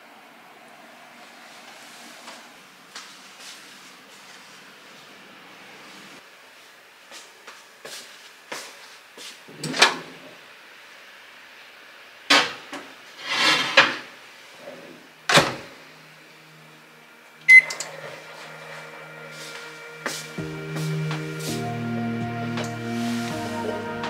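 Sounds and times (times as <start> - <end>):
oven humming: 15.2 - 24.0
oven beep: 17.5 - 17.9.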